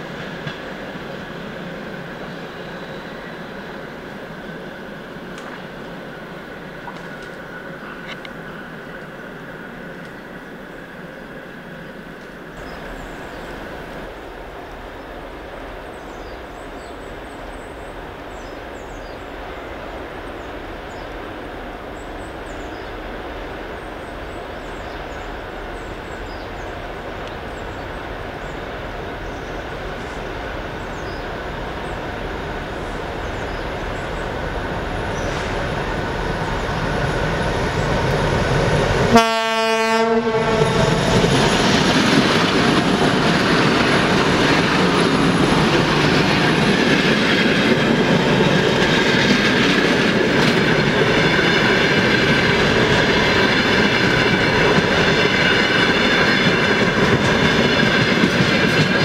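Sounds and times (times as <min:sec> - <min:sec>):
train wheels rolling past: 0:00.0 - 0:59.0
short train horn blast: 0:39.1 - 0:40.9.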